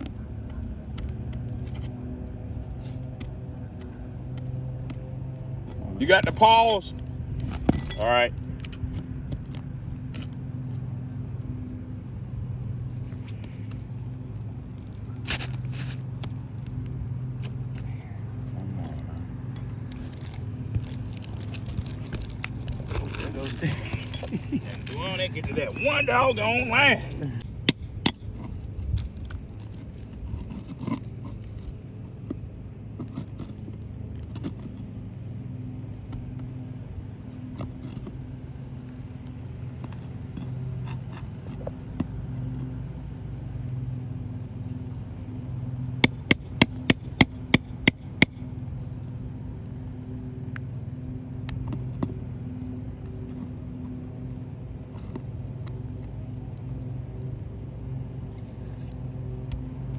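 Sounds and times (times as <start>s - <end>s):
steady low hum: 0.0s - 59.9s
pry bar scraping under shingles: 12.6s - 43.3s, 45.8s - 59.9s.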